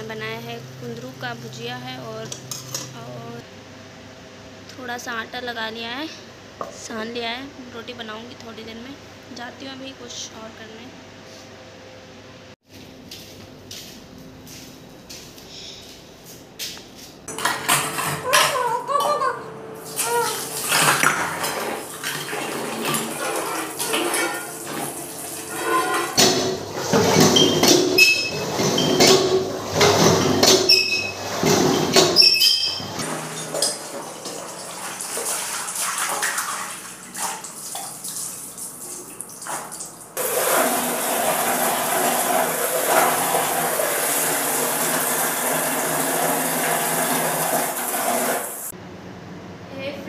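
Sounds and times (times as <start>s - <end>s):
running tap water: 19.8s - 48.7s
steel dishes clattering: 22.8s - 33.9s.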